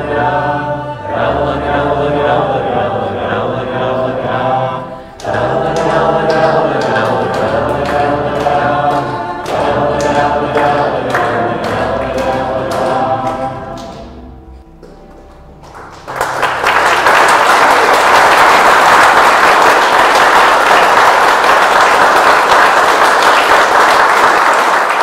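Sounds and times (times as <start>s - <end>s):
voices singing a folk song: 0.0s - 14.3s
audience applause: 5.2s - 13.9s, 15.6s - 25.0s.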